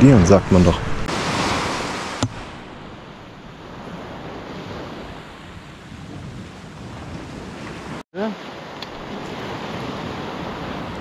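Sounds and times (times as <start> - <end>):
wind on microphone: 0.0 - 11.0
waves washing on pebbles: 8.2 - 11.0.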